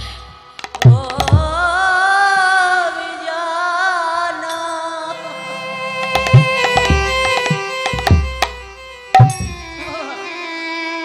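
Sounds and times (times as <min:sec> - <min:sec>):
woman singing with vibrato: 0:00.9 - 0:05.7
held accompaniment tones: 0:05.1 - 0:10.6
drum strokes: 0:06.0 - 0:09.8.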